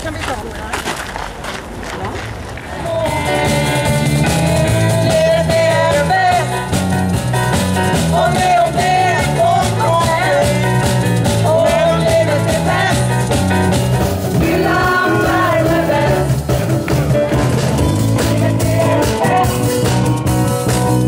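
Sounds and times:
women singing together: 0:03.1 - 0:06.5, 0:08.0 - 0:10.7, 0:14.4 - 0:16.6
drums with steady beat: 0:03.1 - 0:21.0
electric guitar: 0:03.1 - 0:21.0.

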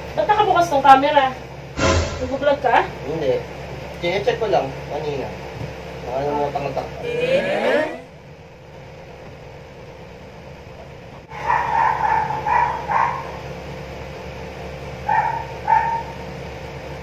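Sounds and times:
steady low hum: 0:01.5 - 0:04.0
dogs barking: 0:11.3 - 0:13.6, 0:15.0 - 0:16.3.

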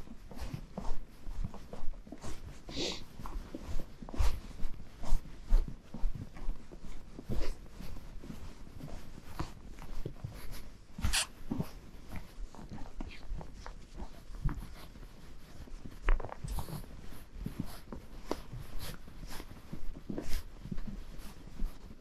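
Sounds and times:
hooves crunching in snow: 0:00.0 - 0:22.0.

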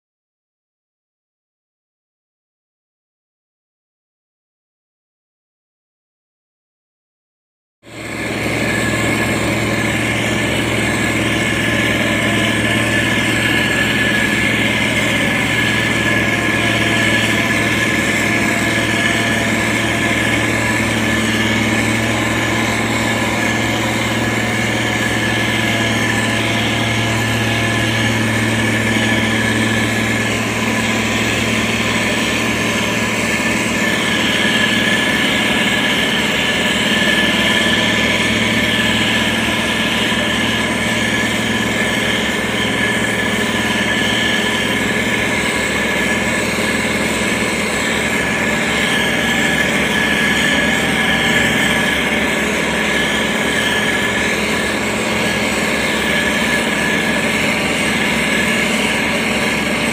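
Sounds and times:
diesel engine running: 0:07.8 - 0:59.9.

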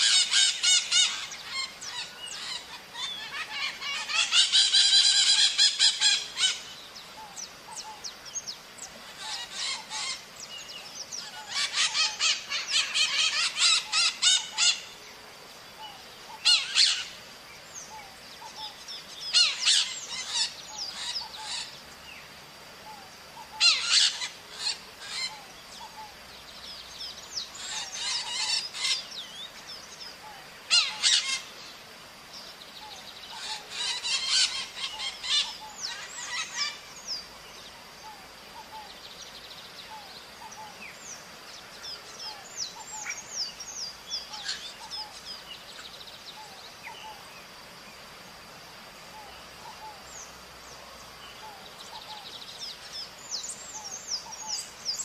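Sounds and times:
parrots calling: 0:00.0 - 0:06.7, 0:09.1 - 0:10.2, 0:11.2 - 0:14.9, 0:16.3 - 0:17.2, 0:19.3 - 0:21.7, 0:23.4 - 0:26.1, 0:27.6 - 0:29.1, 0:30.7 - 0:31.5, 0:33.3 - 0:36.8, 0:44.3 - 0:45.2.

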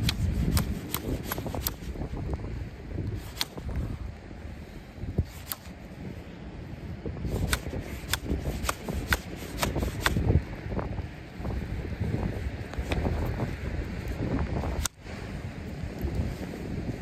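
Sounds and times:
stone striking flint: 0:00.0 - 0:01.9, 0:07.3 - 0:10.3.

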